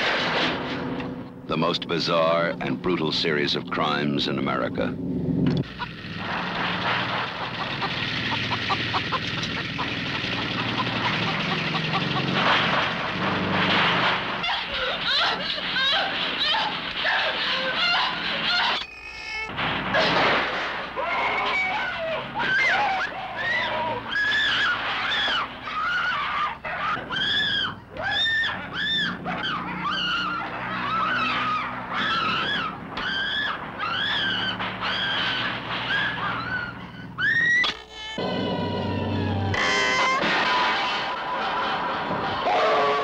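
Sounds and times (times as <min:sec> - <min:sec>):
woman screaming: 0:14.4 - 0:18.8, 0:21.0 - 0:35.2
mechanical motor drone: 0:38.0 - 0:40.0.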